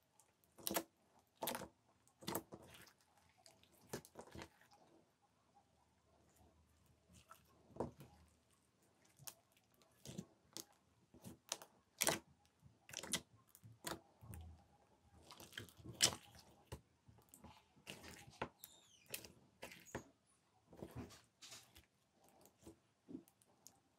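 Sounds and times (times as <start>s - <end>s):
slime squeak: 17.9s - 20.1s.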